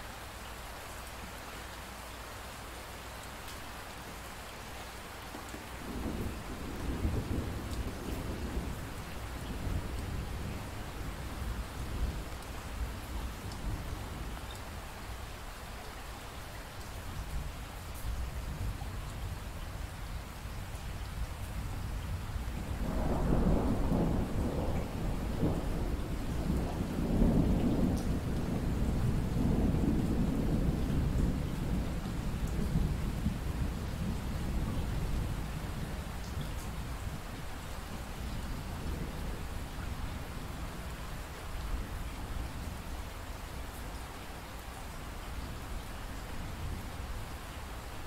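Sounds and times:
steady rain: 0:00.0 - 0:48.0
rolling thunder: 0:05.8 - 0:12.4, 0:21.9 - 0:37.2.

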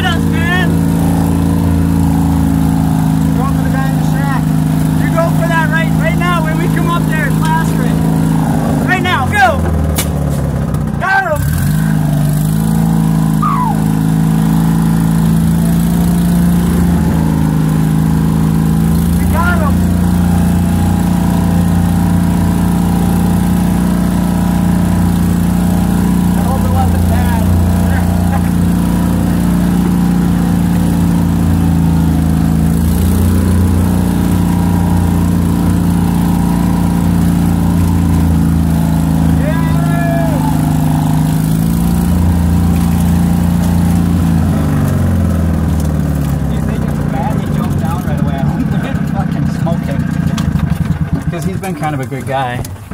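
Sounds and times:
small vehicle engine running: 0:00.0 - 0:52.9
short falling squeal: 0:13.3 - 0:14.0.

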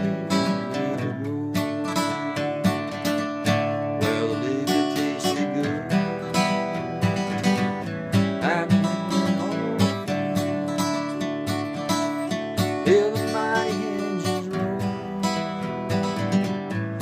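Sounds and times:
acoustic guitar strumming: 0:00.0 - 0:17.0.

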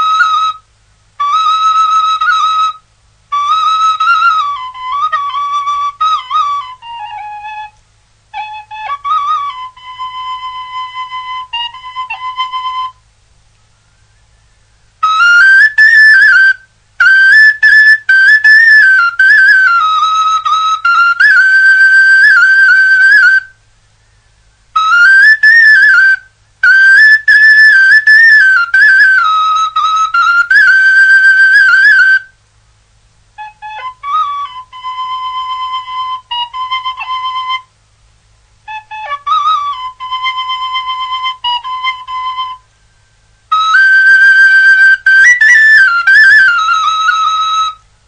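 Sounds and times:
solo flute melody: 0:00.0 - 0:32.4, 0:33.3 - 0:37.8, 0:38.6 - 0:48.0.

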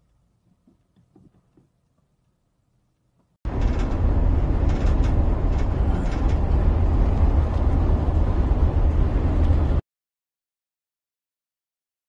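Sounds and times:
tyre and wind rumble in car: 0:03.5 - 0:09.8.

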